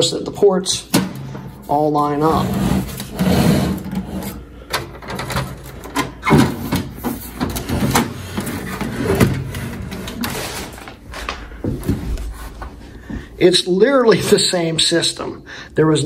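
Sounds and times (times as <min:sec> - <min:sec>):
computer case scraping on desk: 0:02.3 - 0:04.4.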